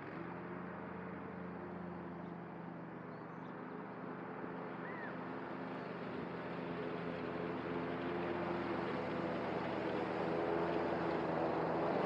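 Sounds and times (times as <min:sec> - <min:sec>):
distant mower engine running: 0:05.7 - 0:12.0.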